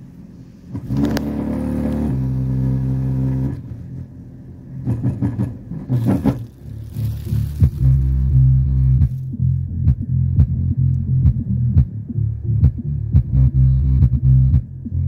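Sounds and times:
deep bass notes from speaker: 0.6 - 3.9, 4.7 - 15.0
low bass thumps: 4.8 - 15.0.

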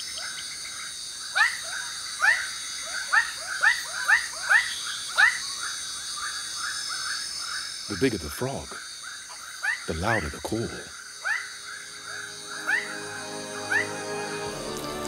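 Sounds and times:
frogs calling: 0.0 - 15.0
high-pitched insect drone: 0.0 - 15.0.

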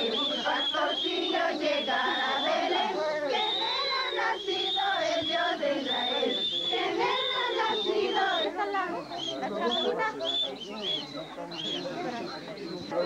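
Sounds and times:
crowd singing together: 0.0 - 10.4
high wavering whistle tone: 0.0 - 13.0.

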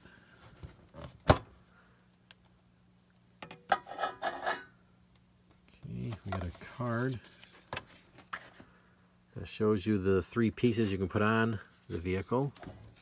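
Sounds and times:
lid scraping and rubbing: 3.7 - 4.7.

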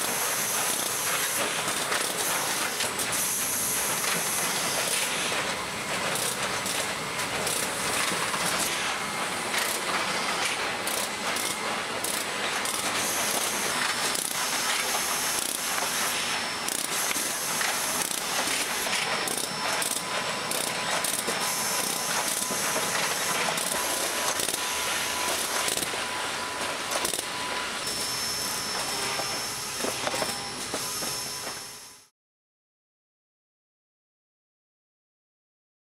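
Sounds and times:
machine clatter of rapid clicks: 0.0 - 3.2, 3.9 - 8.8, 9.5 - 16.1, 16.7 - 24.7, 25.3 - 25.9, 26.9 - 27.3
faint high whine: 14.5 - 32.1.

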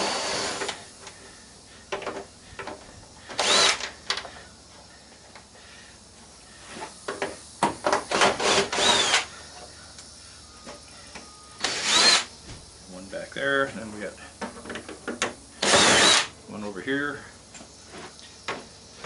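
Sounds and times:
cordless drill whirring: 0.0 - 0.8, 3.4 - 3.9, 8.2 - 9.3, 11.6 - 12.3, 15.6 - 16.3.

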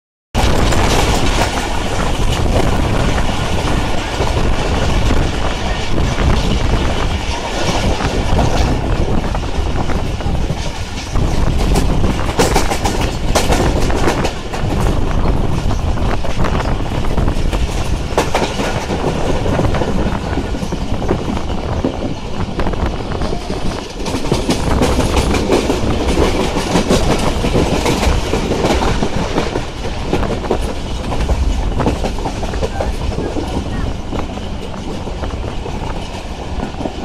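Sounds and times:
train wheels rumbling on track: 0.3 - 37.0
wheels clicking over rail joints: 0.4 - 37.0.

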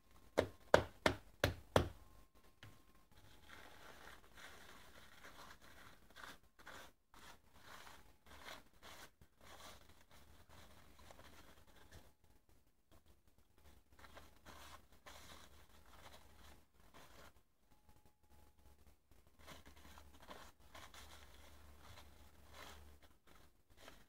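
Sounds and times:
wrapping sheet crinkling: 3.2 - 12.2, 19.3 - 24.0.

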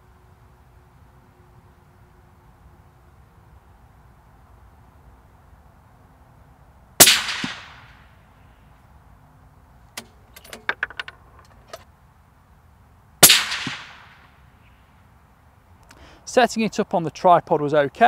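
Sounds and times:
suppressed rifle shots: 7.0 - 8.0, 13.2 - 14.3.

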